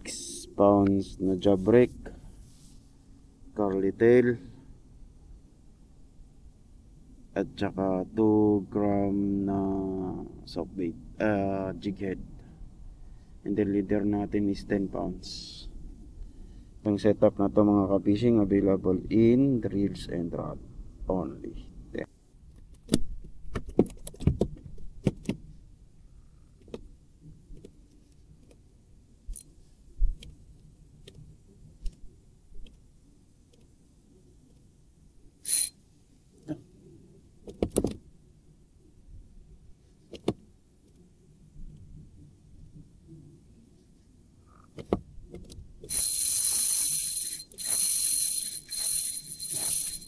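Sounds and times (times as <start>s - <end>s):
fishing reel clicks and knocks: 35.5s - 35.8s, 45.9s - 50.0s.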